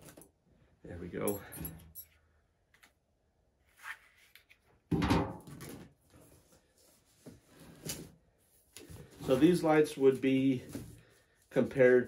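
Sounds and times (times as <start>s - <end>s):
cardboard rustle: 6.0s - 11.4s.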